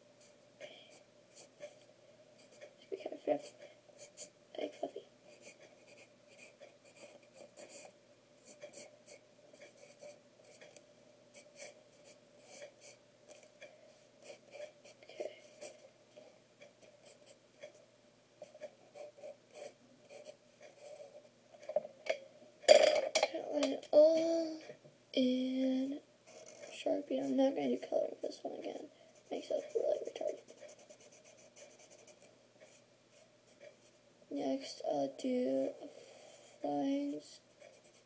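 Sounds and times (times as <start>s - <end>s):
pencil scratching on paper: 1.3s - 1.8s, 2.4s - 10.8s, 11.4s - 13.6s, 14.2s - 15.8s, 18.4s - 21.7s, 26.3s - 28.0s, 28.6s - 34.0s, 37.5s - 38.0s.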